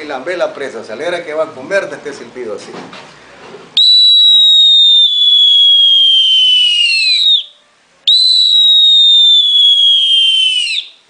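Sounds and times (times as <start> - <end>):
bird-call whistle: 3.8 - 11.0.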